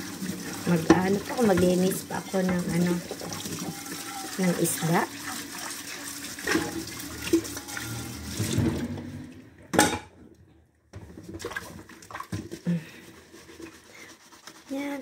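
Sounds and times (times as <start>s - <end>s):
tap running into a sink: 0.2s - 4.8s, 6.3s - 9.1s
dishes knocking: 9.7s - 10.2s
dishware clattering: 9.7s - 10.2s.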